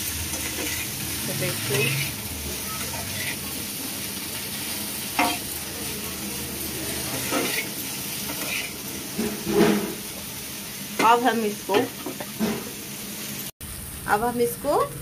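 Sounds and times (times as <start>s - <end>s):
okra sizzling in oil: 0.0s - 15.0s
spoon scraping metal pan: 0.3s - 3.5s, 5.2s - 5.5s, 7.0s - 10.0s.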